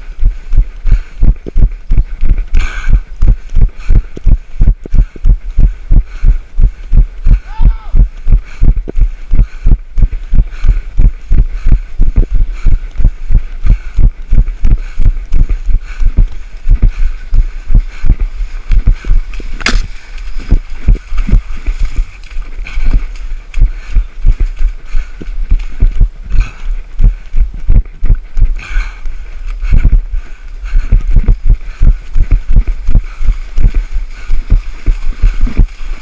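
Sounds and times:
footfalls on muddy trail: 11.5 - 36.0
sharp knock: 19.6 - 19.9.

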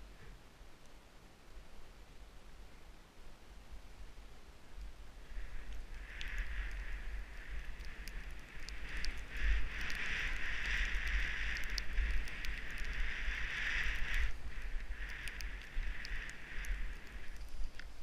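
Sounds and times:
wind rumbling on camera: 0.0 - 18.0
skis hissing through powder snow: 5.2 - 18.0.

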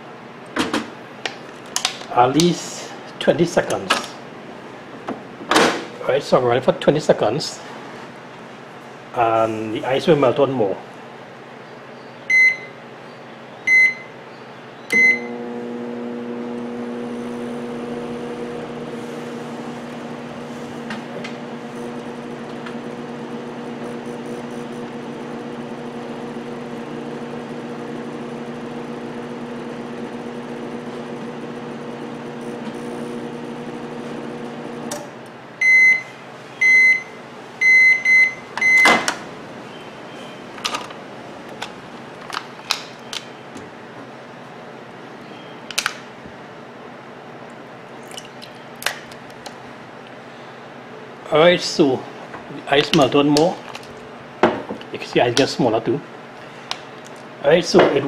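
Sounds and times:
microwave beeps: 12.3 - 12.8, 13.7 - 14.1, 14.9 - 15.4, 35.6 - 39.1
microwave humming: 14.9 - 58.0.

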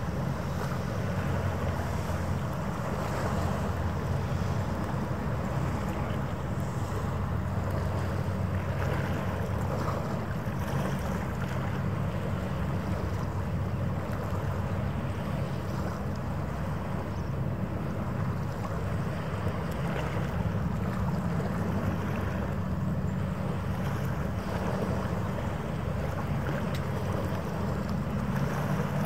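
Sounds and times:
ship machinery rumble: 0.0 - 29.0.

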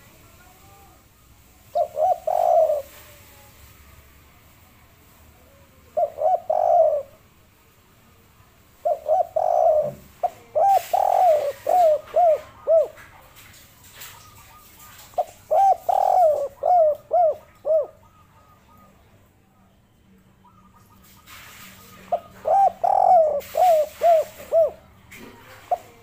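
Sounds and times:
dove cooing: 1.6 - 3.2, 5.5 - 7.2, 8.8 - 13.3, 14.2 - 19.2, 20.4 - 26.0.

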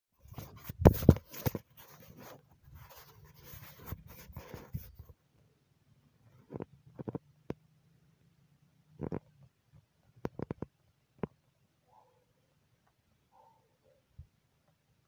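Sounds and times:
rustling of seedlings and soil: 0.2 - 5.4.

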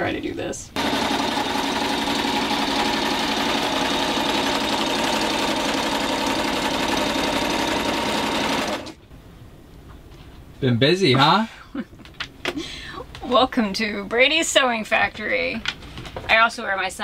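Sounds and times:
sewing machine stitching: 0.8 - 9.0.

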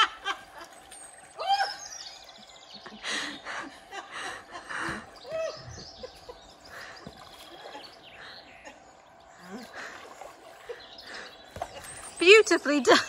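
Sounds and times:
people laughing: 2.4 - 9.9.

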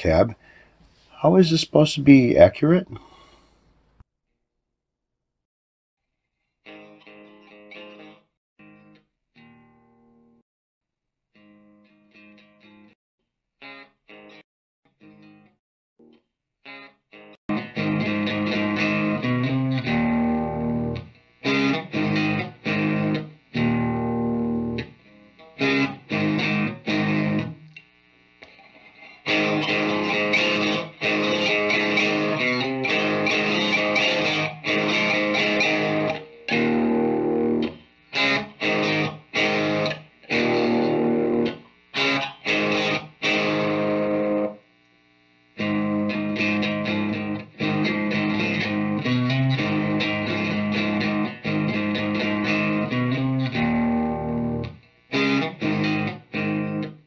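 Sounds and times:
distorted electric guitar chords: 6.7 - 10.4, 16.7 - 44.7, 45.3 - 57.0.

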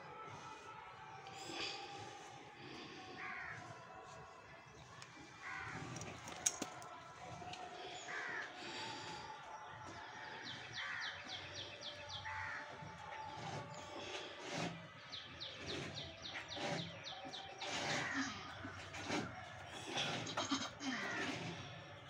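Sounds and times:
crows cawing: 8.1 - 8.5, 12.3 - 12.6.

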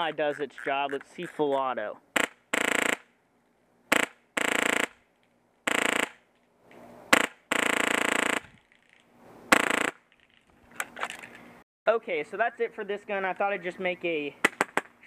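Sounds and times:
airsoft rifle firing full auto: 2.2 - 3.1, 3.9 - 5.0, 5.7 - 6.2, 7.2 - 8.5, 9.6 - 10.0.

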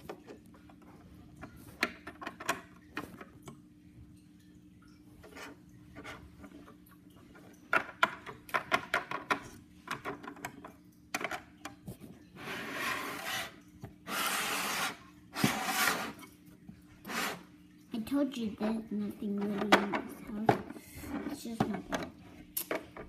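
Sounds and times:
plastic toys tapping and clicking: 1.8 - 3.5, 7.6 - 11.9, 19.3 - 23.0.

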